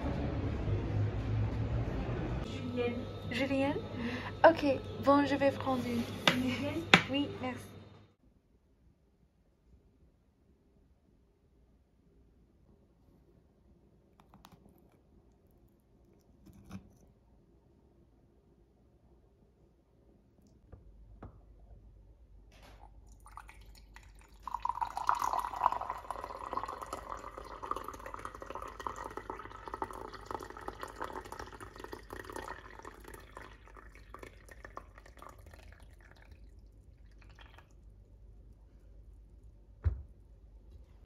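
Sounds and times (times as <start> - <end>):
tea pouring into a mug: 22.8 - 38.2.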